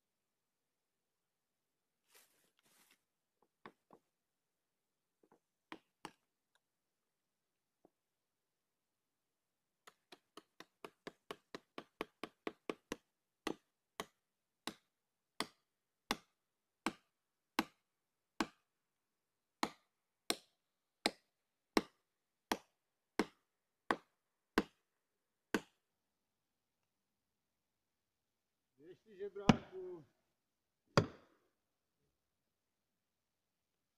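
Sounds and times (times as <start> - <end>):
tool striking wedge knocks: 29.4 - 29.7.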